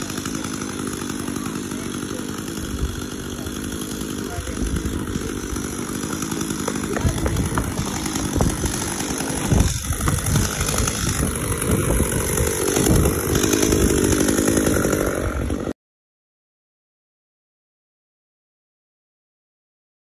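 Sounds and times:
chainsaw running and revving: 0:00.0 - 0:15.8.

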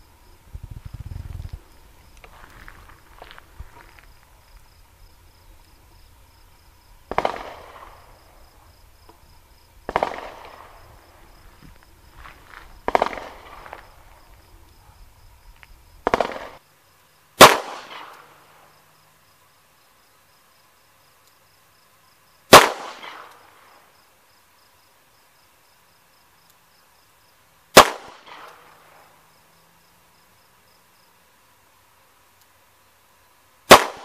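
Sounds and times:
quieter sharp bangs: 0:07.0 - 0:08.5, 0:09.1 - 0:11.4, 0:12.6 - 0:14.2, 0:16.0 - 0:16.6, 0:17.4 - 0:18.3, 0:22.5 - 0:23.3, 0:27.8 - 0:28.8, 0:33.7 - 0:34.0.

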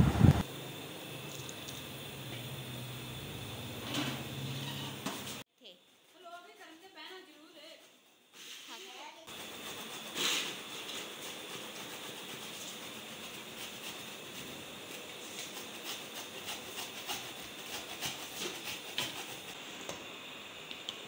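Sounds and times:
pot simmering with hiss and pops: 0:00.3 - 0:03.8, 0:05.0 - 0:21.0.

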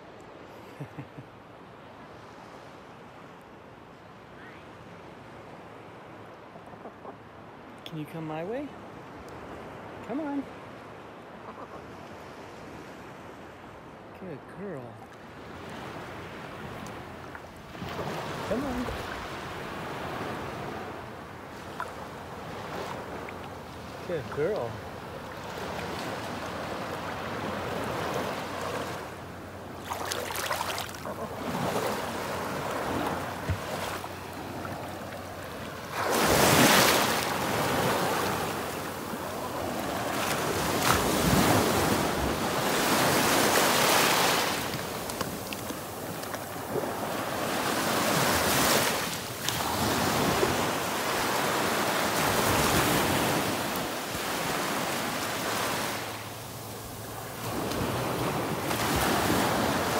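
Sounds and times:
small waves breaking on sand: 0:11.9 - 0:59.9.

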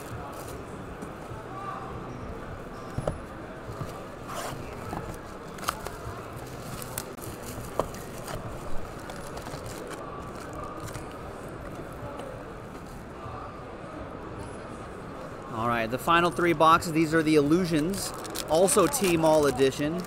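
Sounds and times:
busy hall hum: 0:00.0 - 0:20.0
foil packs crinkling: 0:08.9 - 0:11.0, 0:18.0 - 0:20.0.

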